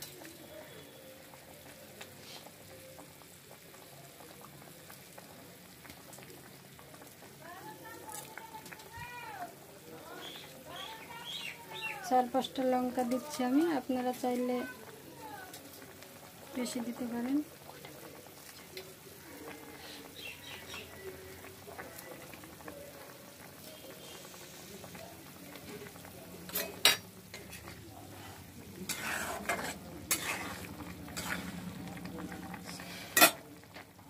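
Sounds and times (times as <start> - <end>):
curry bubbling and sizzling: 0.0 - 34.0
stirring in pan: 10.1 - 34.0.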